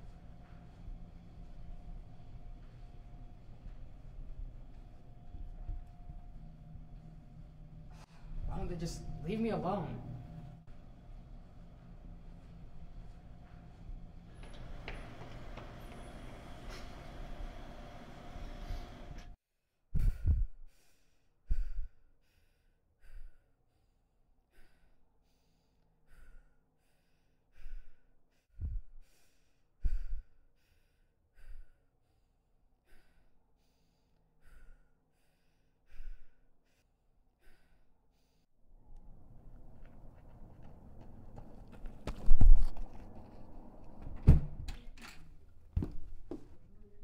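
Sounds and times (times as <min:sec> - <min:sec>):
room noise: 0:00.0 - 0:19.4
heavy breathing: 0:20.0 - 0:38.5.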